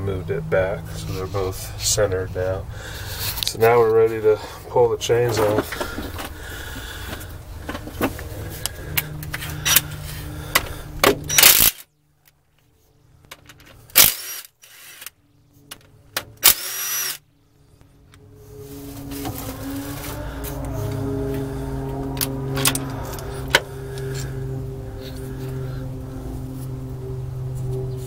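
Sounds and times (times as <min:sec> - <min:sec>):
steady low hum: 0:00.0 - 0:28.0
power driver spinning: 0:16.4 - 0:17.2.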